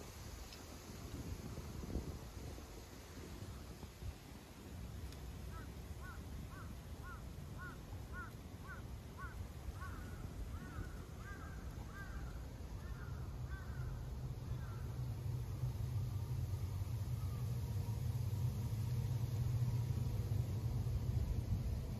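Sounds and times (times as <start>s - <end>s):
bird calling with caw-like notes: 5.5s - 15.0s.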